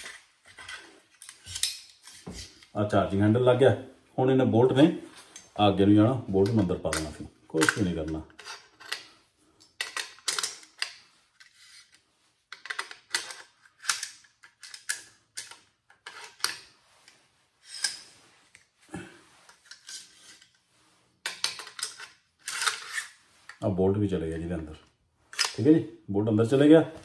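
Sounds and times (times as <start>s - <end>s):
metallic clicks and scrapes: 0.0s - 2.8s, 6.4s - 18.7s, 19.4s - 23.6s, 25.3s - 25.6s.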